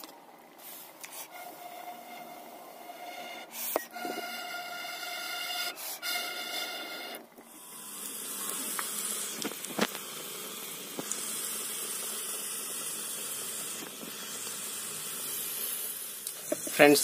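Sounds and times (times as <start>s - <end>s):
onions sizzling in hot oil: 7.6s - 16.9s.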